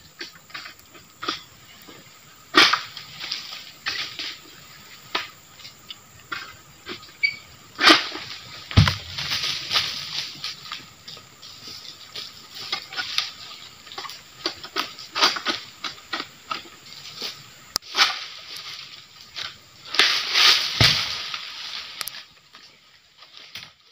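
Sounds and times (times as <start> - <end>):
dry palm fronds crackling: 0.0 - 23.9
heavy thud: 8.7 - 9.4, 20.8 - 21.2.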